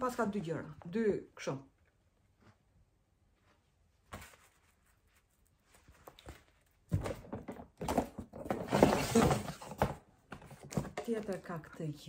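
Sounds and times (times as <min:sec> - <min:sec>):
knocks and rustles of handling: 0:02.2 - 0:11.6.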